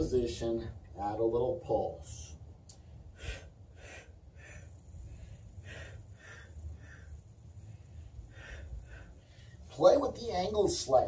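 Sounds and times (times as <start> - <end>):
faint low rumble: 0.0 - 11.0
man breathing softly: 2.8 - 9.7.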